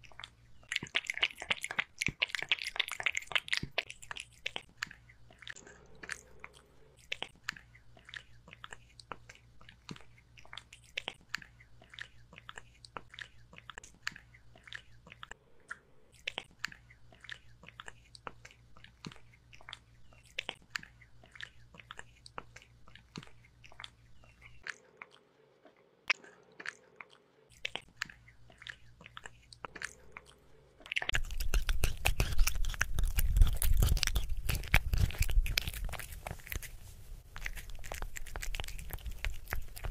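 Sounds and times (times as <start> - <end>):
kitten mouth wet clicks: 0.0 - 6.3, 30.8 - 39.9
kitten chewing and biting: 0.0 - 39.9.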